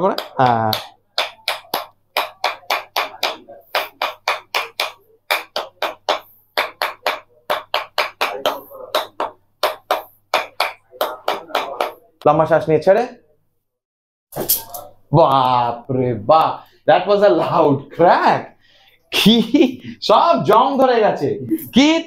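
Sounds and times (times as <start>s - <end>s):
mallet tapping wooden rod: 0.1s - 12.0s.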